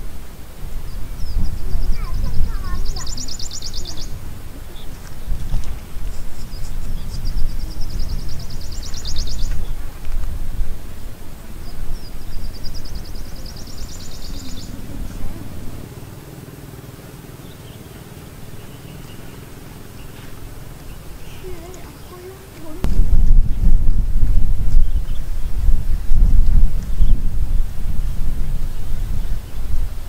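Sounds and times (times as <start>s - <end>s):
low rumble: 0.0s - 30.0s
songbird high fast trill: 0.8s - 9.9s, 10.8s - 23.0s.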